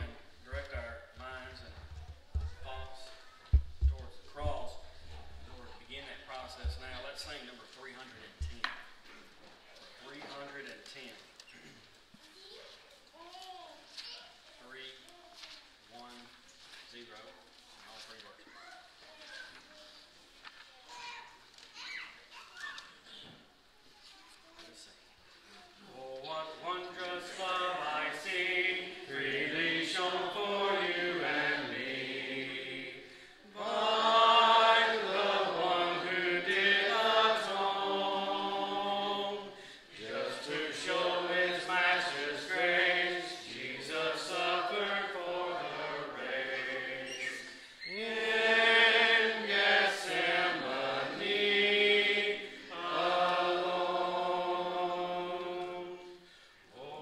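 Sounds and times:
congregation singing a hymn: 0.0 - 9.3, 25.9 - 57.0.

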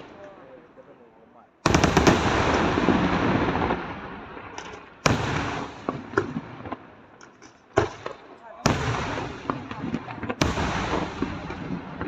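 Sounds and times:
scattered firework pops: 4.4 - 12.0.

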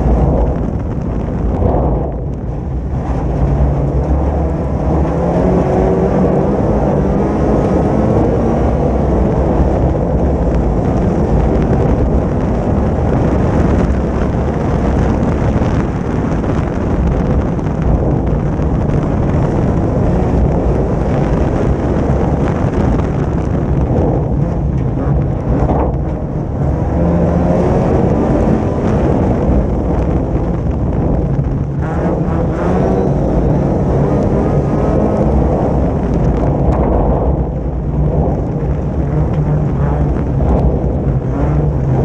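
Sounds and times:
racing car engine: 0.0 - 42.0
wind on microphone: 0.0 - 42.0.

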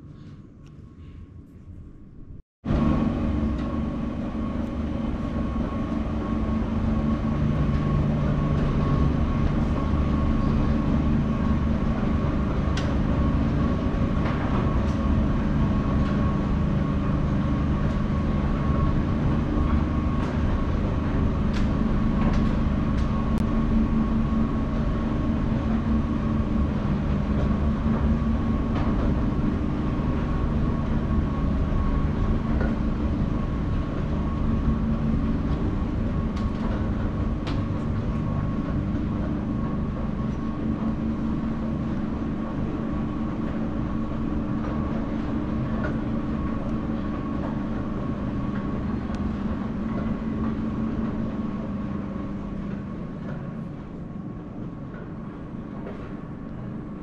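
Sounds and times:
subway train rumbling: 0.0 - 57.0.

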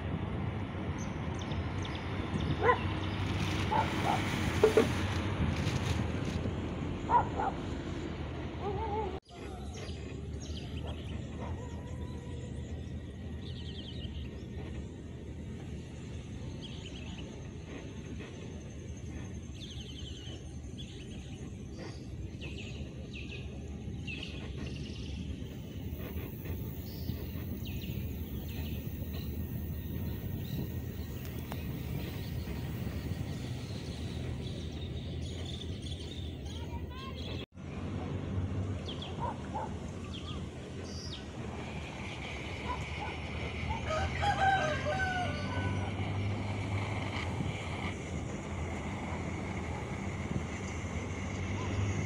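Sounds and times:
wind rumble on microphone: 24.1 - 36.4, 40.8 - 52.0
rooster crowing: 43.7 - 45.9.

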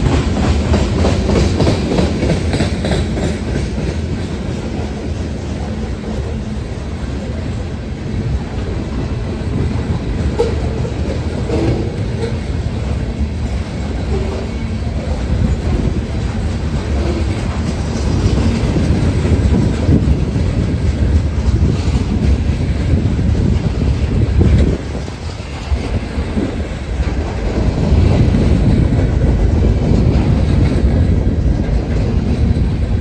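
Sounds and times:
clickety-clack over rail joints: 0.0 - 33.0
freight train wheels rumbling: 0.0 - 33.0.

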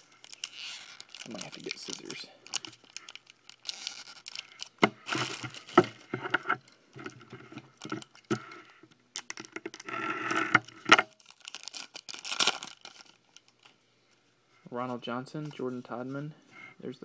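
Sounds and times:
foil pack tearing and crinkling: 0.0 - 6.2, 7.8 - 13.7.

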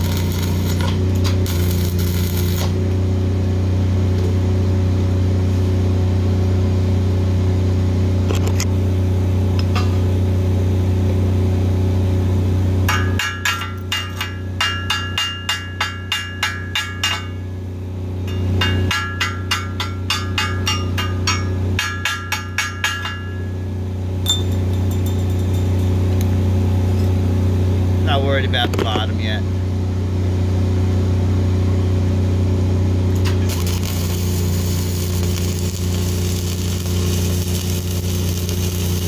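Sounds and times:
diesel generator engine running: 0.0 - 14.7, 23.0 - 39.0
hammer ringing on steel: 12.9 - 17.5, 18.3 - 23.6, 24.2 - 26.0.

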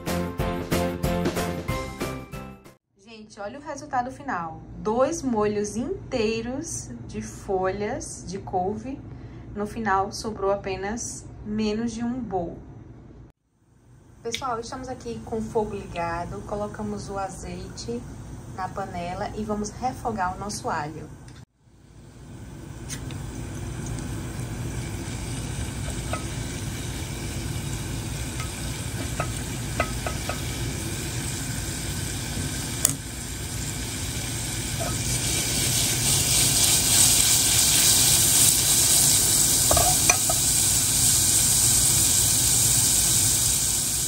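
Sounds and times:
garlic sizzling in oil: 21.8 - 44.0.

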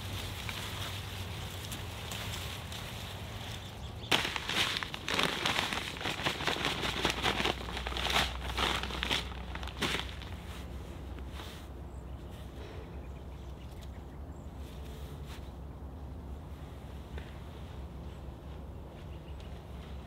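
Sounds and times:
bag crinkling and rustling: 0.0 - 10.8.

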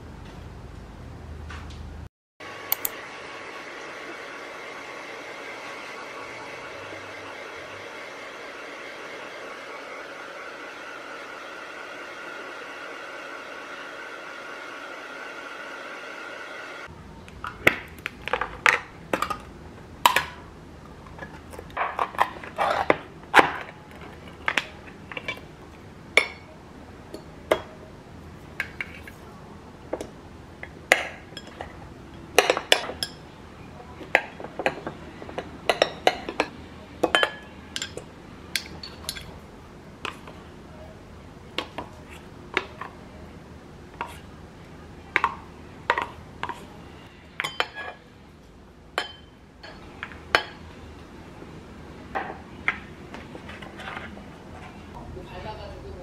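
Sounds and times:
hair dryer blowing: 2.4 - 16.9.

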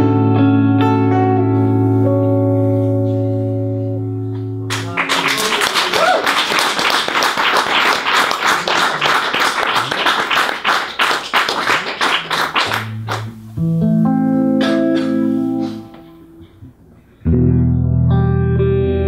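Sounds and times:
electric guitar playing: 0.0 - 5.8, 12.0 - 19.0
audience clapping: 4.7 - 13.4.

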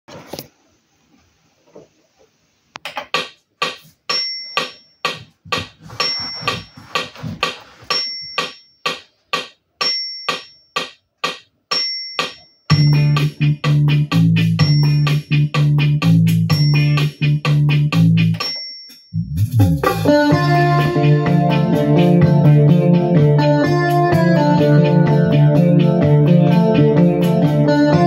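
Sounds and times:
brushy percussion beat: 3.6 - 28.0
bass notes: 12.7 - 18.4, 19.2 - 28.0
keyboard chords: 12.7 - 18.5, 19.2 - 28.0.

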